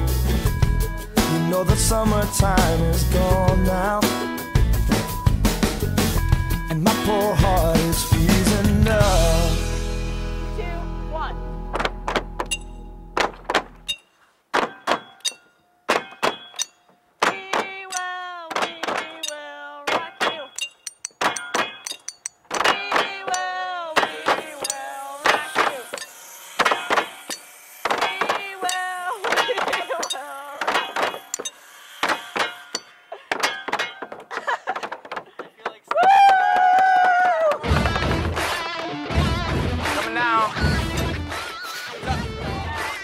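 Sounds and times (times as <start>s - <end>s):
hammers driving nails into wood: 14.5s - 19.3s.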